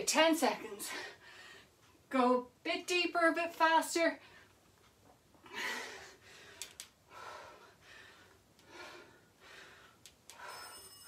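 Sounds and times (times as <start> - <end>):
woman breathing hard: 5.4 - 10.9.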